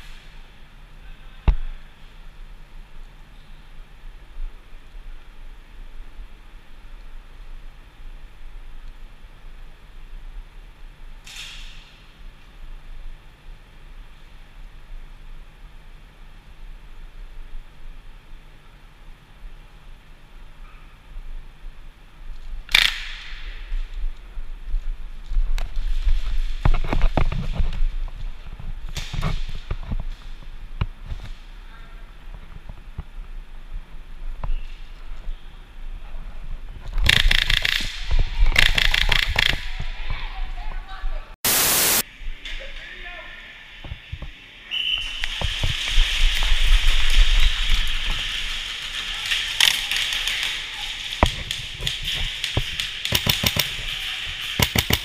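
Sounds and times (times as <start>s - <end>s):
sharp cracks: 22.7s - 23.9s, 36.9s - 39.8s, 45.1s - 55.0s
steady hiss: 41.4s - 49.3s.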